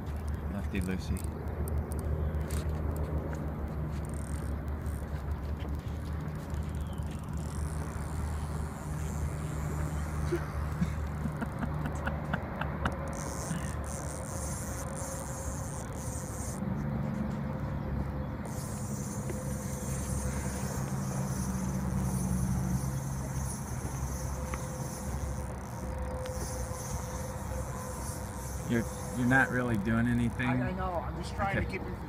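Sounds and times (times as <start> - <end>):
low motor hum: 0.0 - 32.0
high hiss of insects: 18.5 - 29.6.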